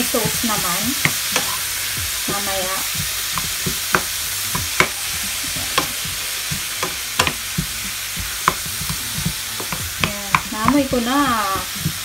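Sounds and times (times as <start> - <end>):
leeks sizzling in frying pan: 0.0 - 12.0
spatula tapping pan: 0.0 - 12.0.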